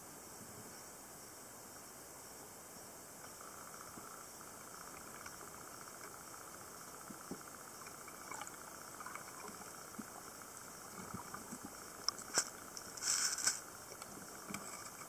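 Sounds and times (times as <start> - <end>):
faint underwater hiss: 0.2 - 15.0.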